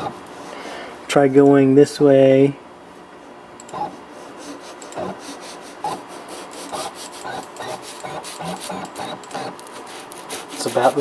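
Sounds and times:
paper scraping: 6.2s - 11.0s.

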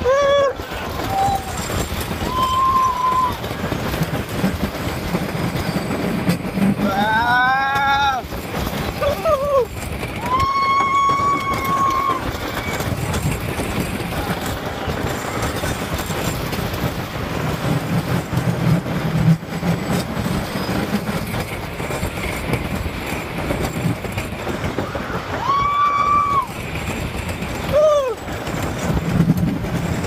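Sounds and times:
rider screaming: 0.0s - 3.5s, 6.8s - 8.4s, 9.0s - 13.1s, 24.8s - 26.6s, 27.6s - 28.3s
roller coaster rattling on track: 0.0s - 30.0s.

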